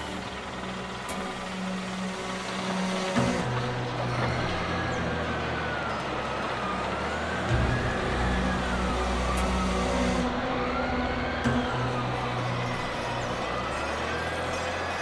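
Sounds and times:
diesel wheel loader engine: 0.0s - 15.0s.

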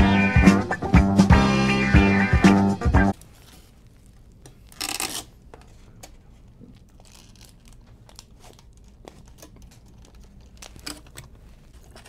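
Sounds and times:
foil wrapper crinkling: 3.2s - 5.5s, 6.5s - 12.0s.

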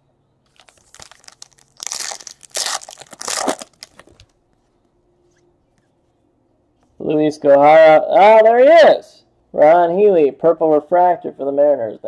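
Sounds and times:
wrapper tearing and crinkling: 0.5s - 4.3s.

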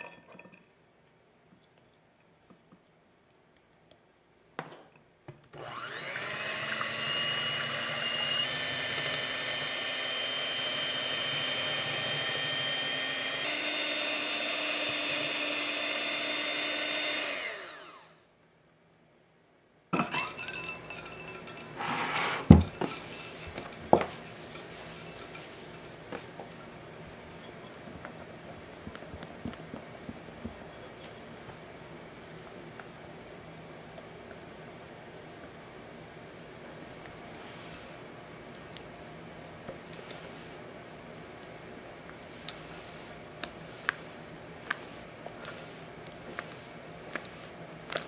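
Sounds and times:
electric hand mixer whining: 5.6s - 18.2s.

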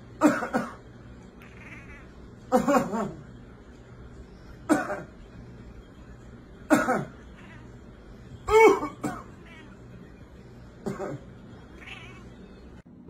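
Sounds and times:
cat meowing: 1.4s - 2.3s, 7.2s - 7.8s, 9.3s - 9.9s, 11.7s - 12.4s.

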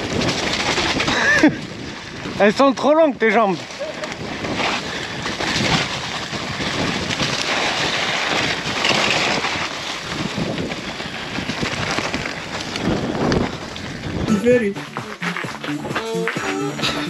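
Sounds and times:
bike knocking: 0.0s - 3.0s
wind on microphone: 0.0s - 15.2s
bike tyres rolling on dirt: 0.0s - 17.0s.

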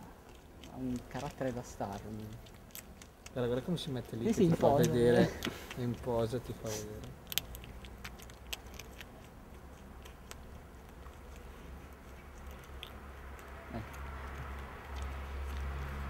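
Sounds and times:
rodent gnawing and chewing: 0.0s - 16.0s.

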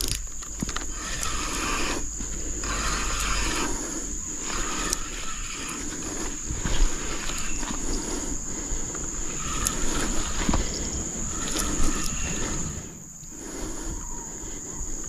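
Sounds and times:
fishing reel winding: 0.0s - 8.3s, 9.2s - 10.5s, 11.3s - 12.5s
high-pitched insect drone: 0.0s - 15.0s.

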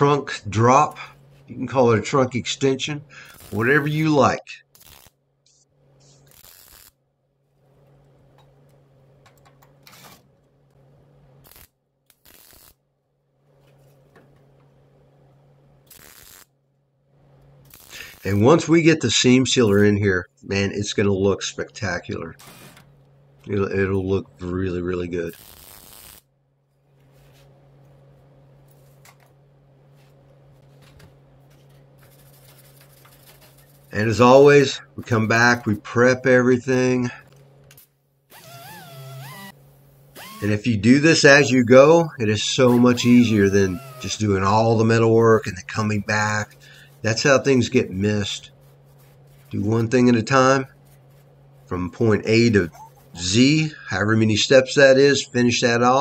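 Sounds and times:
welder low hum: 0.0s - 7.0s, 11.0s - 12.8s, 14.6s - 26.3s, 26.9s - 55.1s
welding arc crackle: 3.2s - 4.1s, 4.7s - 5.2s, 6.2s - 7.0s, 11.4s - 12.8s, 15.9s - 16.6s, 17.6s - 18.6s, 25.3s - 26.3s.

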